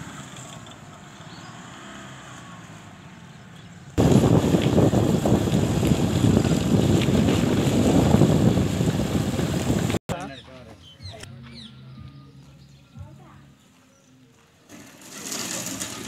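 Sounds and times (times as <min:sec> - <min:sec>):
wind buffeting microphone: 0:04.0 - 0:10.0.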